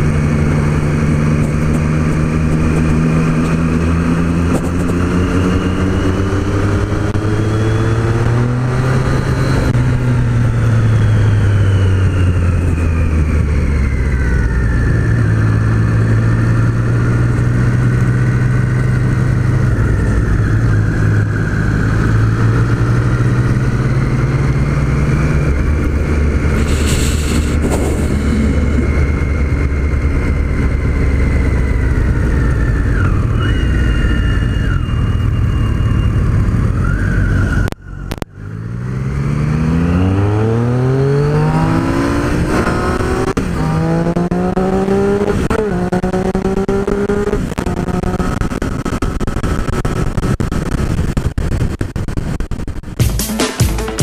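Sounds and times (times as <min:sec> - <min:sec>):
wind rush: 0:00.0 - 0:53.0
motorcycle engine: 0:00.0 - 0:54.0
music: 0:53.0 - 0:54.0.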